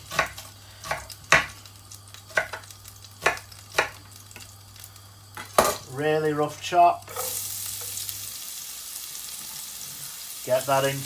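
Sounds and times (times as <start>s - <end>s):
knife chopping onion: 0.0s - 1.6s, 2.3s - 4.0s
faint steady hum: 0.0s - 11.0s.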